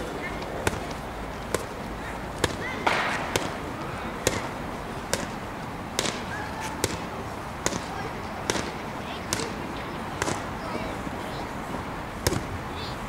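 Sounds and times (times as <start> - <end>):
boxing gloves smacking mitts: 0.4 - 1.8, 2.4 - 9.6, 10.2 - 10.5, 12.2 - 12.6.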